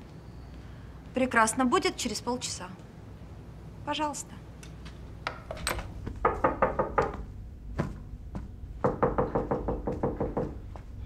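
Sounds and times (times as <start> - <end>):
knocking on wooden door: 6.2 - 7.2, 8.8 - 10.6.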